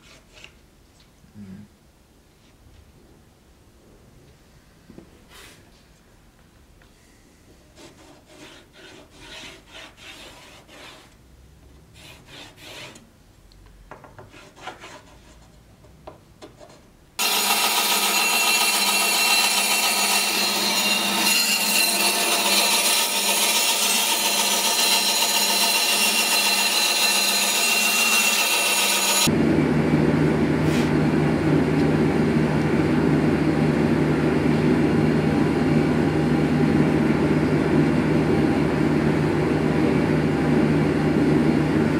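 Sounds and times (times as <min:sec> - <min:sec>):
band saw cutting wood: 0:17.2 - 0:29.3
loud machine drone: 0:17.2 - 0:41.9.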